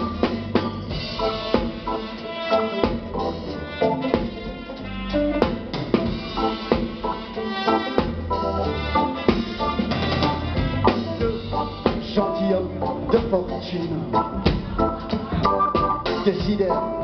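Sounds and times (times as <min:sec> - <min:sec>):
drum kit strikes: 0:00.0 - 0:07.4, 0:08.0 - 0:12.4, 0:13.1 - 0:17.0
live band playing: 0:00.0 - 0:17.0.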